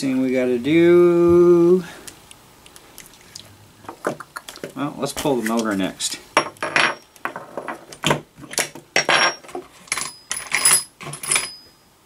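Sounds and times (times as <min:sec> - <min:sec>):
metal tools clinking: 0:06.4 - 0:11.7.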